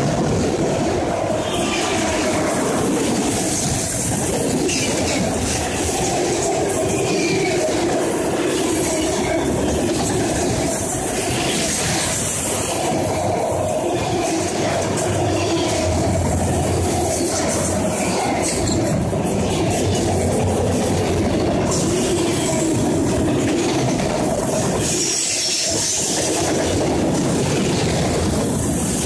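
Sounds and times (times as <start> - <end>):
freight train wheels clattering on rails: 0.0 - 29.0.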